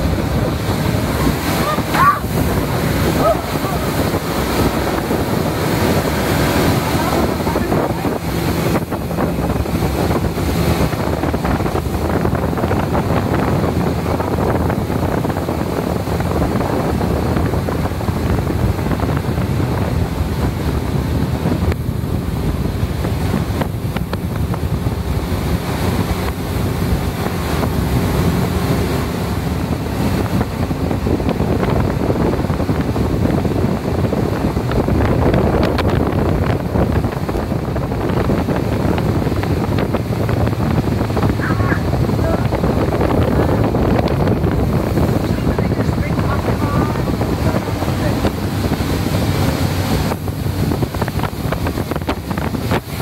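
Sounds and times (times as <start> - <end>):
boat engine drone: 0.0 - 53.0
water rushing past hull: 0.0 - 53.0
wind buffeting microphone: 0.0 - 53.0.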